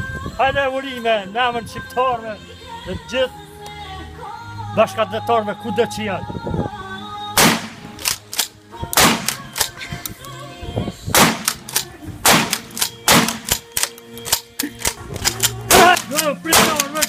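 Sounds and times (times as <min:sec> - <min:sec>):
rifle gunshots with echo: 0:07.4 - 0:09.7, 0:11.1 - 0:13.8, 0:15.2 - 0:17.0.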